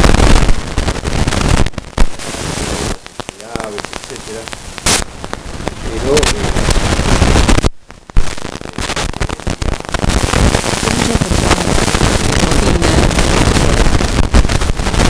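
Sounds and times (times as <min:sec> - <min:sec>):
microphone crackling and rustling: 0:00.0 - 0:15.0
person speaking: 0:02.8 - 0:04.5, 0:05.8 - 0:06.6, 0:10.7 - 0:13.2.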